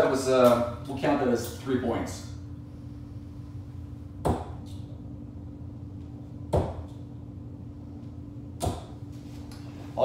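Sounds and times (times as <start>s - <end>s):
faint steady hum: 0.0s - 10.0s
darts hitting dartboard: 4.2s - 4.6s, 6.5s - 6.9s, 8.6s - 9.0s.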